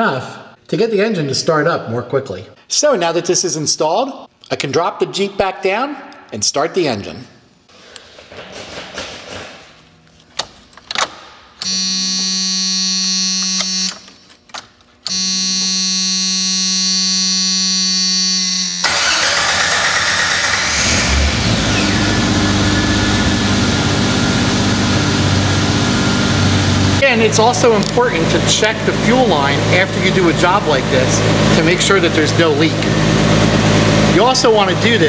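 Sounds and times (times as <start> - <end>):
starter cranking engine: 18.8 - 23.1
engine running: 18.8 - 35.0.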